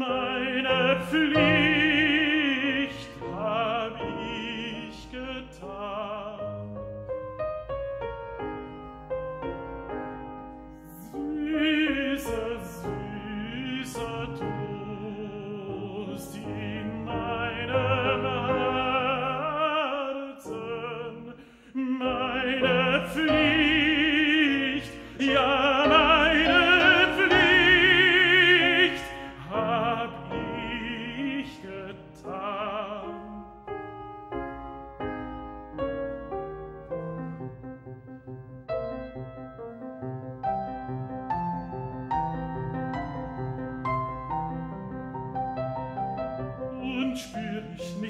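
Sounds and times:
operatic tenor singing: 0.0s - 7.2s, 10.8s - 34.0s, 46.6s - 48.0s
grand piano: 0.0s - 48.0s.

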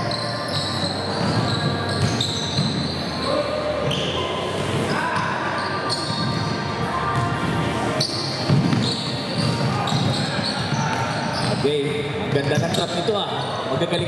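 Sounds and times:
crowd voices: 0.0s - 14.0s
basketball bouncing on court: 1.2s - 2.9s, 8.5s - 11.6s.

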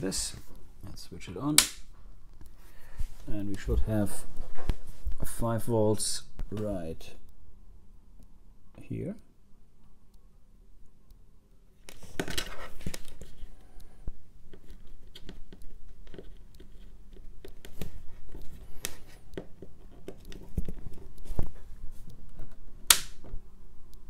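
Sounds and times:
cables rustling and scraping: 0.0s - 7.2s, 11.8s - 23.5s
light clicks and taps: 11.9s - 22.6s.

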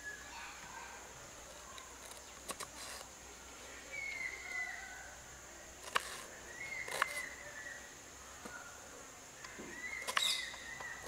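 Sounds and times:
insects buzzing: 0.0s - 11.0s
bird whistling: 3.9s - 5.0s, 6.5s - 7.9s, 9.4s - 11.0s.

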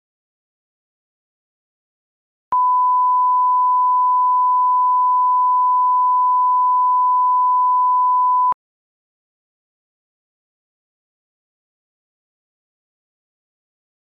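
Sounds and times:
steady test tone beep: 2.5s - 8.6s.

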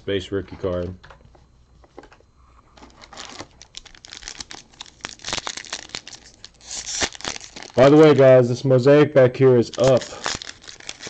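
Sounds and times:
wrapper crinkling and tearing: 2.8s - 8.4s, 9.6s - 11.0s.

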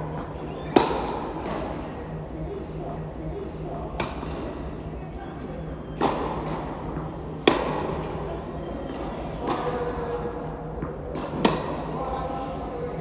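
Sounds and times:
tennis ball pops with echo: 0.7s - 1.6s, 6.0s - 7.9s, 10.8s - 11.8s.

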